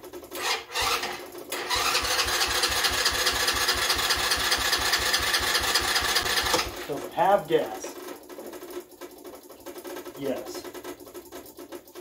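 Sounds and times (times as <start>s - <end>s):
electric starter cranking engine: 0.3s - 7.1s.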